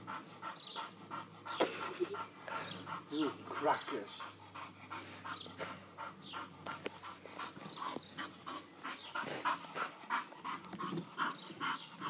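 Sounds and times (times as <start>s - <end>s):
dog panting heavily: 0.0s - 12.0s.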